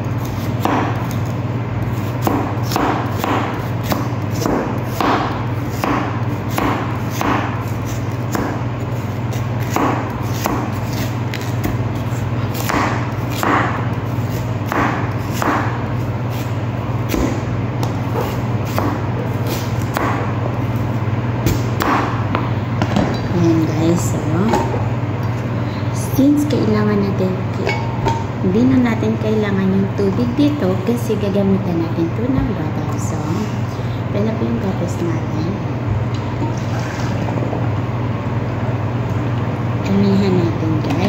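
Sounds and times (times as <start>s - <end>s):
steady low hum: 0.0s - 41.0s
knife chopping carrots on a board: 0.3s - 1.2s, 2.0s - 8.6s, 9.3s - 11.8s, 12.5s - 16.5s, 17.1s - 20.3s, 21.4s - 22.2s.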